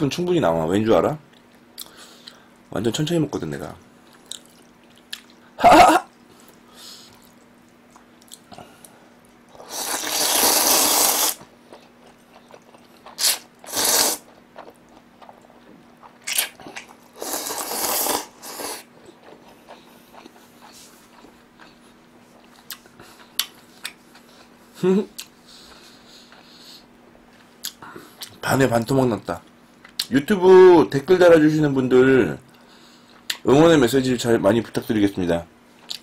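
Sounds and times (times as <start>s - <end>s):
noodles slurping: 9.6s - 14.8s, 16.6s - 20.8s
chewing: 11.7s - 17.6s, 18.5s - 24.6s.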